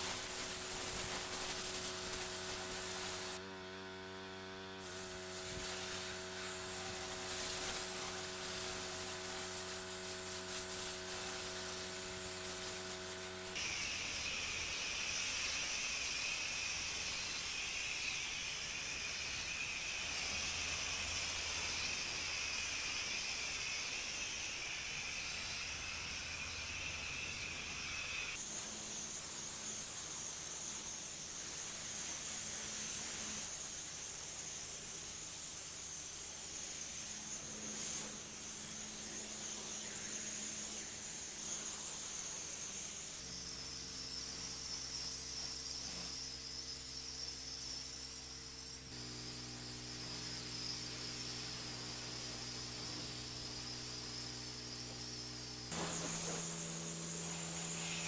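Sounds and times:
pressure washer spraying: 0.0 - 3.4, 4.8 - 58.0
machine humming: 55.6 - 58.0.

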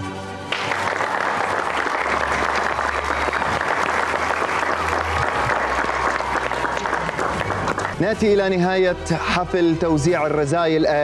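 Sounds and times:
audience applauding: 0.5 - 8.1.

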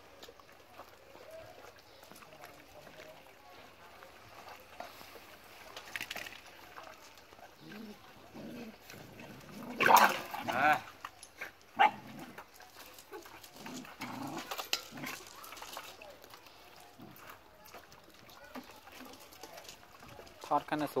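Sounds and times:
dogs feeding from pans: 0.0 - 21.0
dog yelp: 11.8 - 12.0.

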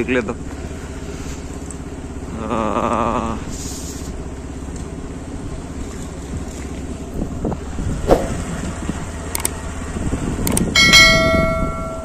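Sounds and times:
motorcycle engine running: 0.0 - 12.0
wind buffeting microphone: 5.4 - 12.0.

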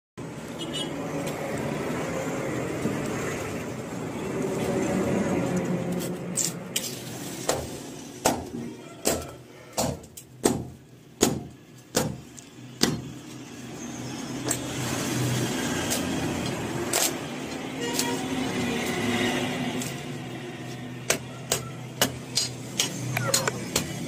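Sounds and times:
cleaver chopping bones on wood: 8.2 - 13.1, 21.1 - 24.0.

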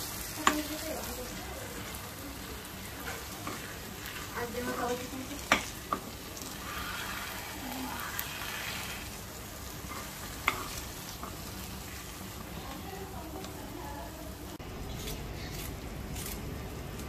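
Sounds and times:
low sizzle: 0.0 - 17.0
metal spoon stirring mash in pan: 2.8 - 12.0.

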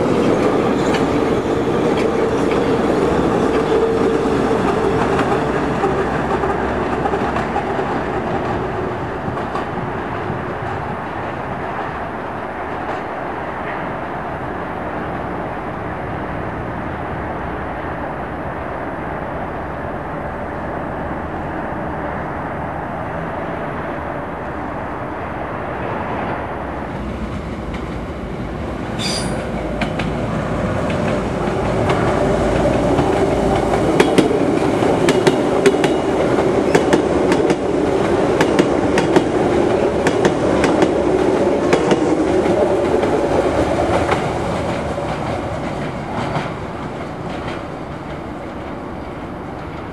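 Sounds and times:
train wheels clickety-clack: 0.0 - 12.0, 26.9 - 49.9
train approaching: 0.0 - 49.9
train rumbling: 0.0 - 49.9.

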